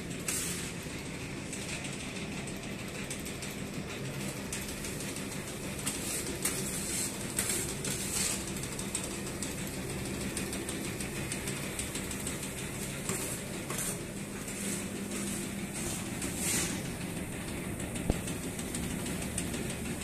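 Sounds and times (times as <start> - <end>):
rattling hiss of sifting: 0.0 - 0.8, 4.7 - 10.8, 11.4 - 19.8
sieving machine motor hum: 0.0 - 20.0.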